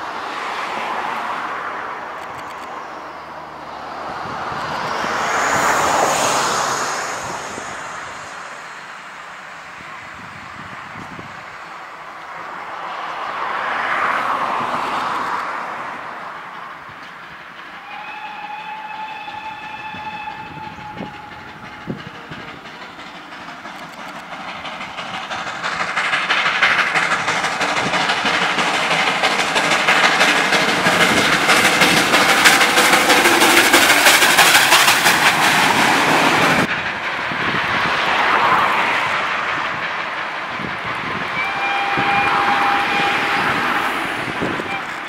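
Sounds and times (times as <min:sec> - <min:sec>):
train passing with rail clatter: 0:00.0 - 0:45.0
steam locomotive whistle: 0:17.7 - 0:22.3, 0:41.2 - 0:45.0.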